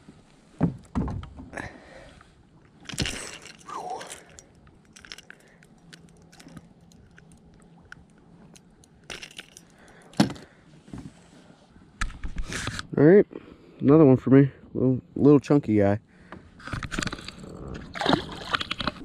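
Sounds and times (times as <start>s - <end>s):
fishing lure clicking and rattling: 2.8s - 10.1s.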